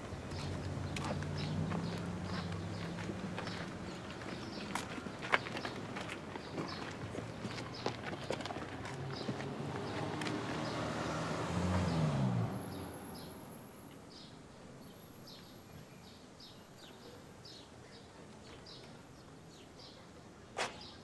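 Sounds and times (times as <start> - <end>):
vehicle engine passing: 0.0 - 5.8, 8.5 - 13.7
small birds chirping: 0.2 - 11.2, 11.8 - 21.0.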